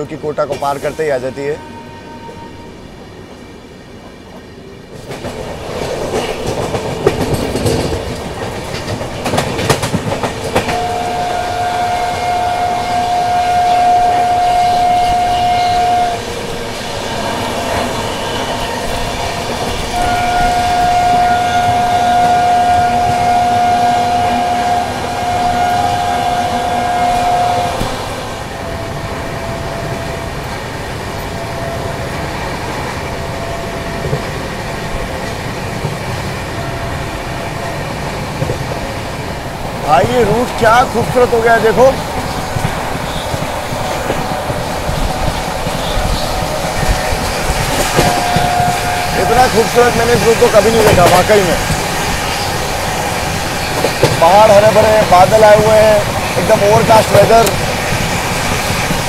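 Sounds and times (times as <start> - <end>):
train horn blasts: 0.8 - 2.8, 10.4 - 34.4, 36.4 - 37.9, 39.9 - 59.0
train wheels clattering over rails: 4.9 - 13.9, 14.8 - 59.0.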